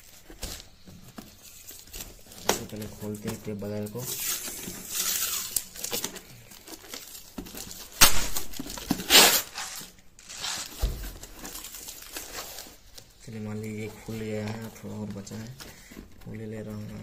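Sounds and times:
packing tape ripping off cardboard: 0:00.0 - 0:13.0.

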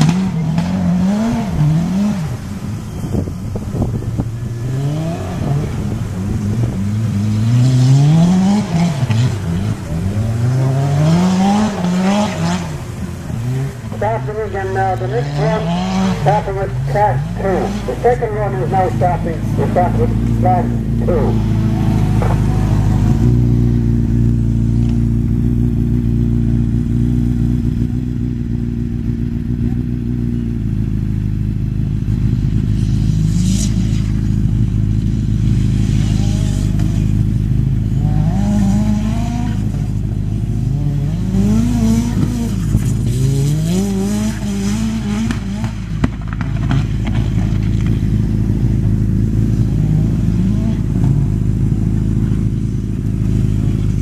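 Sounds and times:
engine revving with gear changes: 0:00.0 - 0:54.0.

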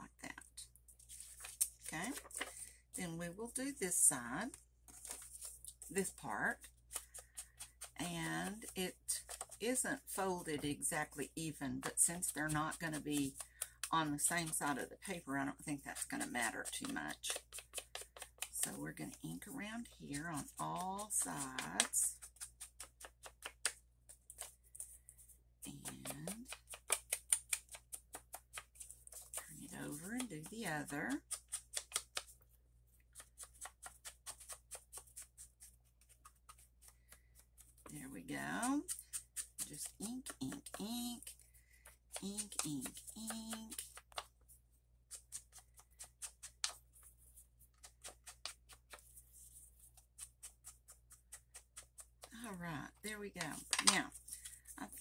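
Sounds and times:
inking tool rubbing paper: 0:04.9 - 0:32.3, 0:33.1 - 0:55.0
ink pad rubbing paper: 0:45.0 - 0:52.3.

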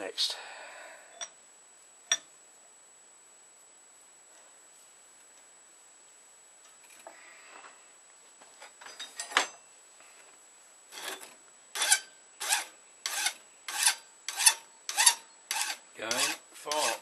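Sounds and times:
file rasping on steel blade: 0:11.8 - 0:17.0.

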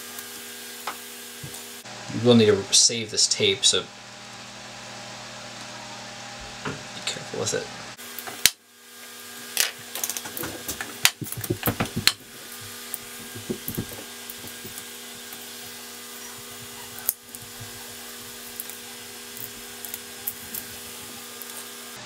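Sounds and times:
crackles and taps: 0:08.2 - 0:08.6, 0:09.6 - 0:21.7
steady low hum: 0:09.7 - 0:22.0.

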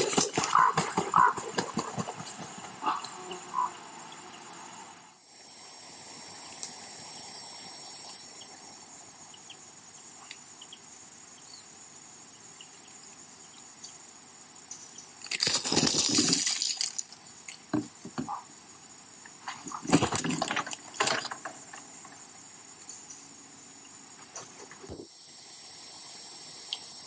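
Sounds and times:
animal rustling and flapping: 0:00.0 - 0:02.8
microphone hiss: 0:00.0 - 0:27.0.

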